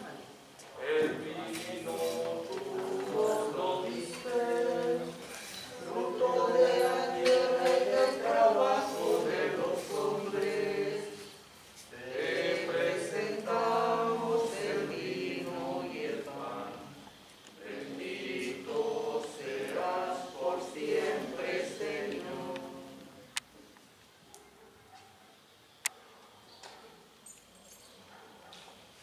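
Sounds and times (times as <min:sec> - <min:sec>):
church choir singing a hymn: 0:00.0 - 0:23.3.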